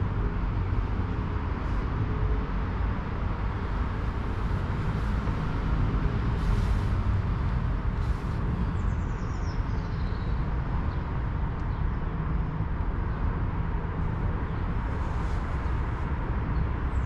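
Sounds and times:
low urban rumble: 0.0s - 17.0s.

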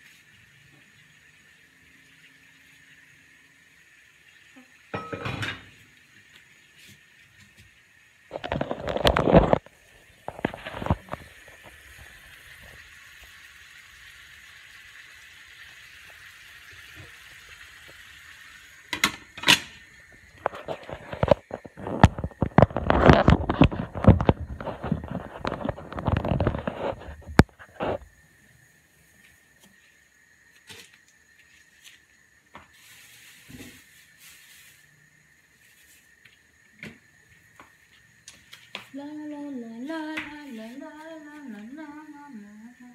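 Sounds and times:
meat sizzling in a pan: 0.0s - 38.7s
glass lid clinking on pan: 4.9s - 5.7s.

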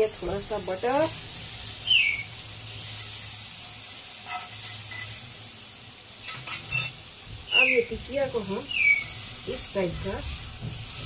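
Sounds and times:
butter sizzling in frying pan: 0.0s - 11.0s
high falling chirp: 1.8s - 2.4s, 7.5s - 7.9s, 8.7s - 9.1s.

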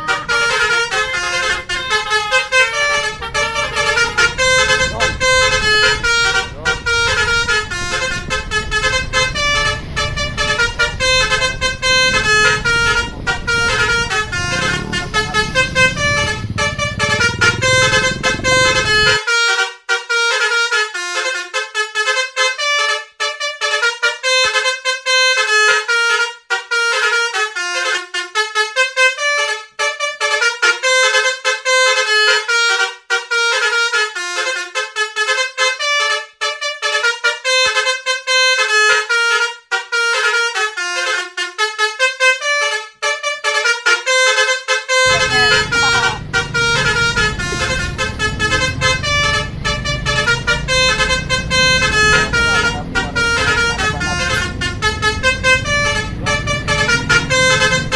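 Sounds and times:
engine and road rumble: 0.0s - 19.6s, 42.0s - 57.9s
bus horn melody: 0.0s - 57.9s.

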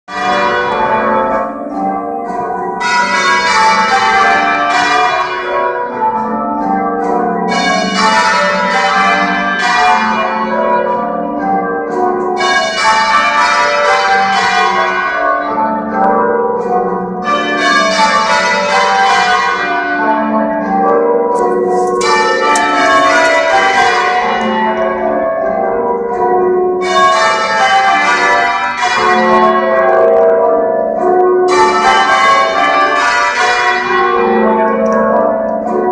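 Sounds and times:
church bells ringing: 0.1s - 35.9s.

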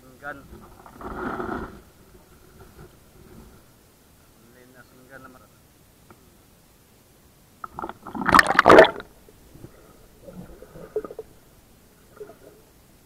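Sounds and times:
water splashing and churning: 7.6s - 11.3s
underwater bubbling and gurgling: 7.6s - 12.8s.

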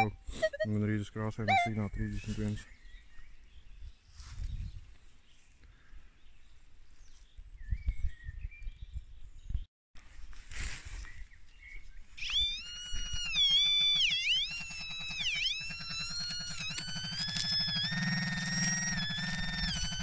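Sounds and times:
metal detector electronic tone: 0.0s - 0.8s, 1.4s - 2.0s, 12.2s - 20.0s.

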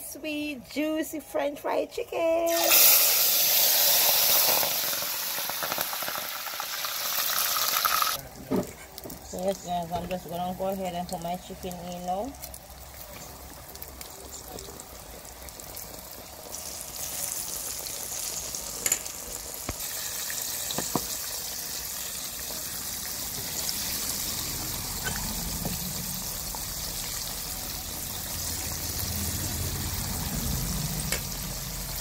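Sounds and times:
chicken sizzling in oil: 2.5s - 32.0s.

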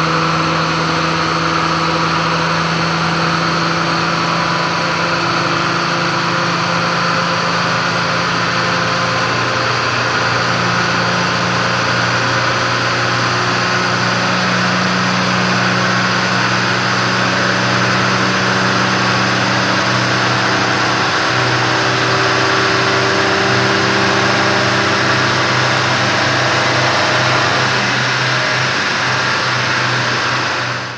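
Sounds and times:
car engine running: 0.0s - 30.9s
rushing noise: 15.5s - 30.9s.

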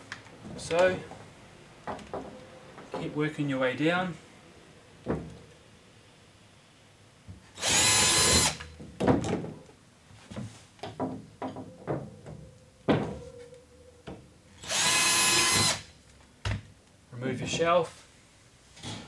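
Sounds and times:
cordless drill drilling into wall: 7.6s - 8.7s, 14.6s - 15.9s
short knocks and clunks: 10.3s - 13.3s.

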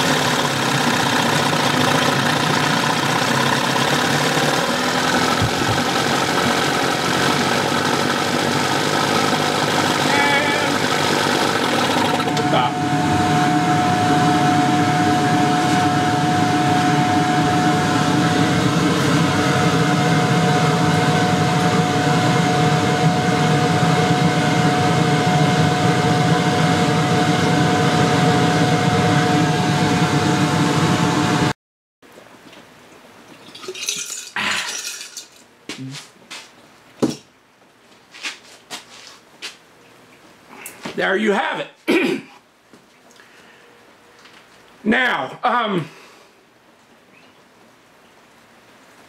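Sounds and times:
outboard motor running: 0.0s - 31.5s.

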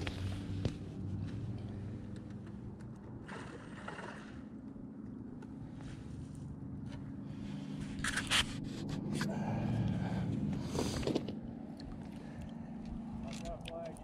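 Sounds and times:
low hum: 0.0s - 14.0s
fabric rubbing against camera: 7.8s - 9.3s.

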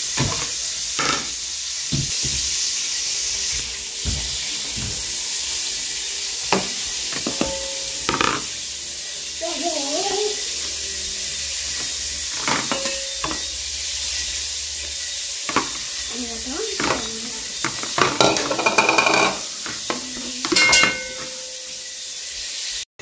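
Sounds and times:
steady sizzling hiss: 0.0s - 22.9s
plates and cutlery clattering: 0.2s - 1.3s, 6.4s - 8.6s, 11.7s - 13.6s, 15.4s - 15.9s, 16.8s - 21.9s.

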